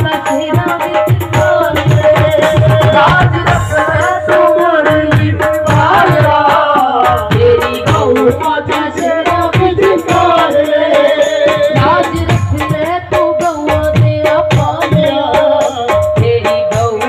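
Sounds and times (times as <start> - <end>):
hand drum beat: 0.0 - 17.0
woman singing into a microphone: 0.0 - 17.0.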